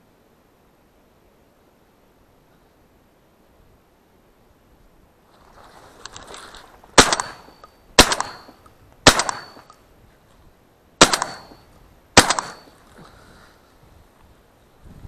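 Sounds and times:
shotgun shots echoing: 7.0 - 9.7, 11.0 - 11.6, 12.2 - 12.8.

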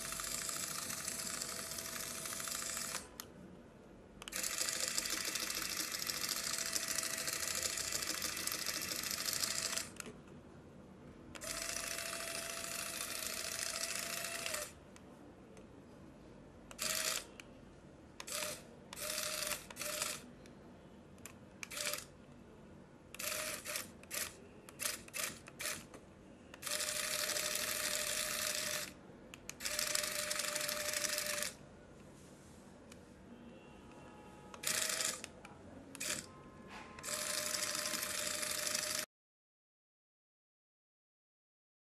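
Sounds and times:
toy electric motor and gears whirring: 0.0 - 3.1, 4.3 - 10.0, 11.4 - 14.8, 16.7 - 17.3, 18.2 - 20.2, 21.7 - 22.1, 23.2 - 25.9, 26.6 - 31.6, 34.6 - 35.3, 36.0 - 36.3, 37.0 - 39.1.

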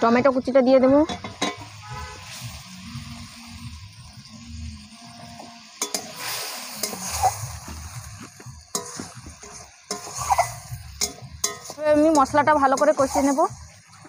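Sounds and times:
spice paste sizzling in a pan: 0.0 - 14.0
metal spatula scraping a pan: 1.1 - 2.7, 5.7 - 13.8.

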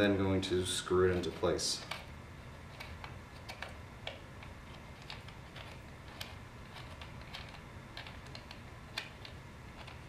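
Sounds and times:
faint small clicks and ticks: 2.7 - 10.0.

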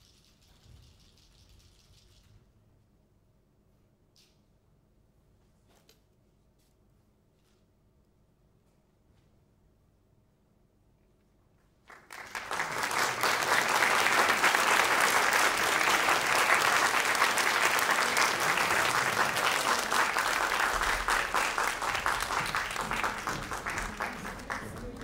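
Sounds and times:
audience applause: 11.9 - 25.0.

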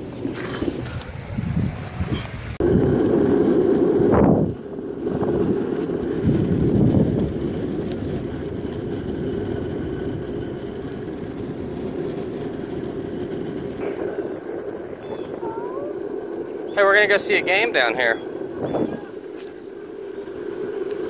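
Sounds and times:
skateboard wheels rolling on asphalt: 0.0 - 21.0.

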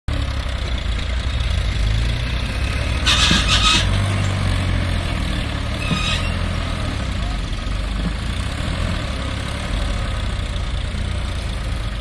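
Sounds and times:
tractor diesel engine under load: 0.1 - 12.0.

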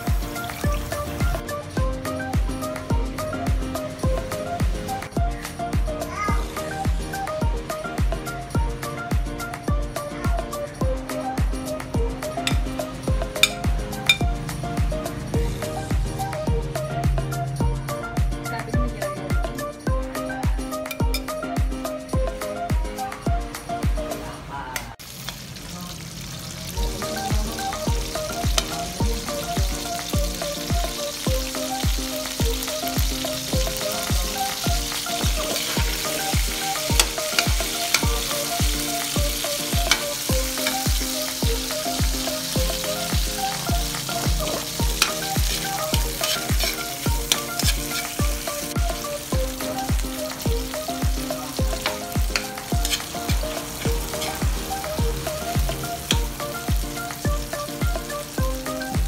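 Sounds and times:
meat sizzling in hot oil: 0.0 - 5.0, 10.9 - 16.1, 25.0 - 59.0
background music with beat: 0.0 - 24.3, 26.8 - 59.0
metal spatula scraping wok: 44.4 - 48.2, 51.8 - 54.4.

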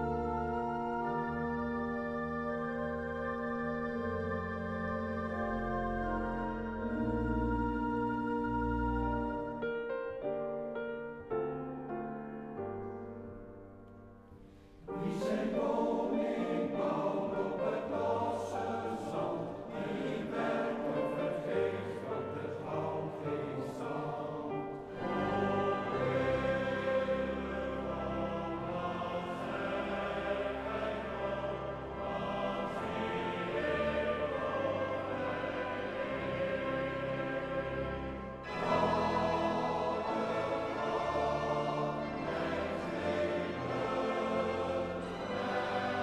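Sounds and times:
piano: 0.0 - 46.0
men's choir singing: 14.9 - 46.0.

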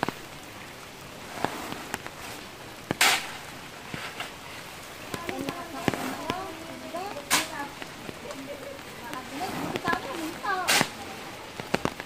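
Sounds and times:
shovel scraping wet soil: 1.3 - 4.3, 7.1 - 7.8, 9.2 - 11.0.

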